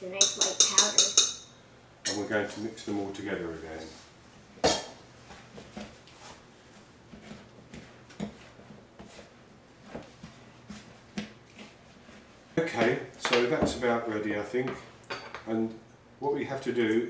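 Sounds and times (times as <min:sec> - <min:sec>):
wooden spoon stirring dough: 0:05.2 - 0:13.8.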